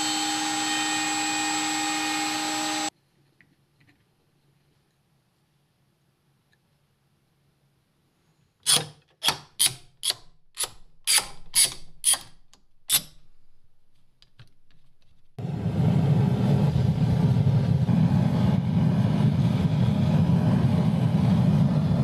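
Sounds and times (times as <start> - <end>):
sharp mechanical clicks: 8.7 - 13.4.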